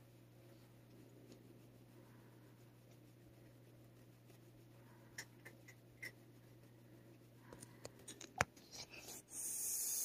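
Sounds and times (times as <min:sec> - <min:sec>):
cat hissing: 0:08.8 - 0:10.0.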